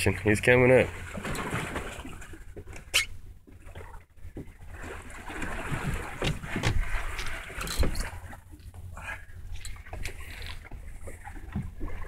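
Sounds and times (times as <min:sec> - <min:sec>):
water washing against boat hull: 0:00.0 - 0:12.0.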